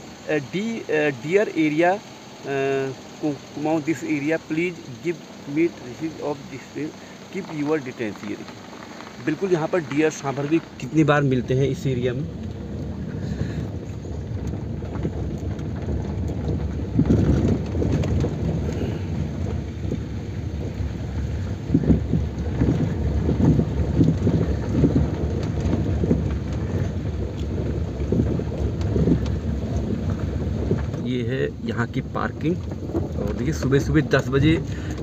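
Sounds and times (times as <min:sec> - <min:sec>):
wind buffeting microphone: 0:03.6 - 0:35.0.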